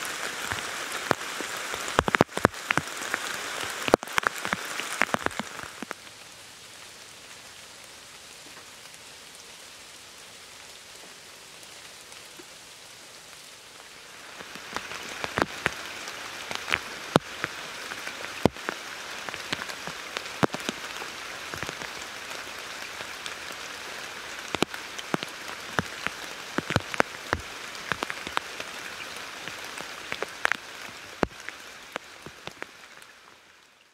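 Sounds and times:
rain falling: 0:00.0 - 0:33.9
sharp raindrops striking close: 0:00.0 - 0:33.9.

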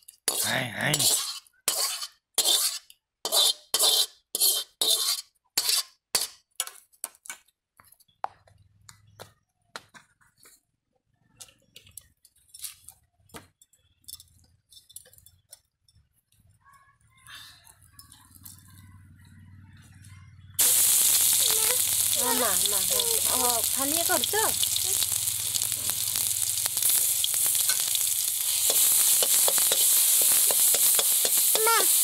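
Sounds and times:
metal ladle scraping wok: 0:00.2 - 0:06.4, 0:20.6 - 0:32.0.

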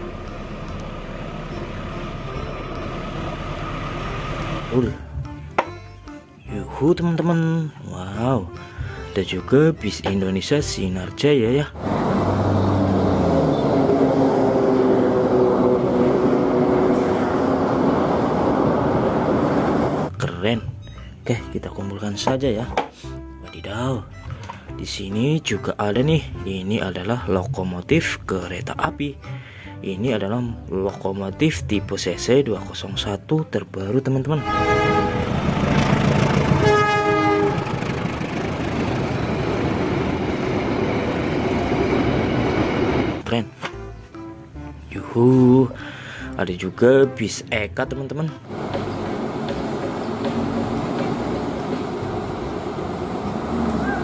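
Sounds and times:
bus engine droning: 0:00.0 - 0:05.6, 0:11.1 - 0:20.8, 0:34.3 - 0:46.3, 0:48.4 - 0:54.0
train cars rolling on rails: 0:11.8 - 0:20.1, 0:34.4 - 0:43.2, 0:48.4 - 0:54.0
train horn: 0:12.4 - 0:17.5, 0:34.4 - 0:38.1.

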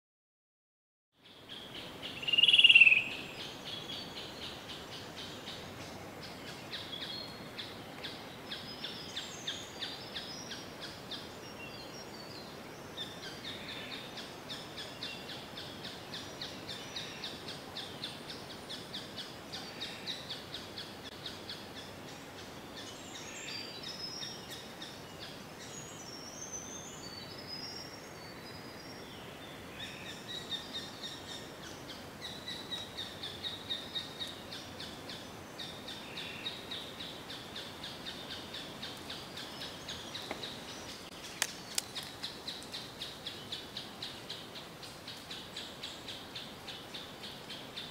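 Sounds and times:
faint hiss: 0:01.2 - 0:47.9
high bird chirps: 0:02.2 - 0:03.2.

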